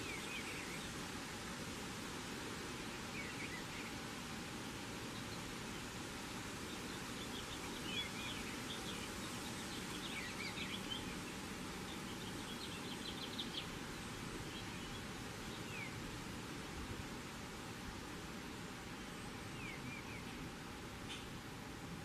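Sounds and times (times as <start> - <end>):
outdoor hiss: 0.0 - 22.0
songbird chirping: 6.5 - 16.2, 18.8 - 21.4.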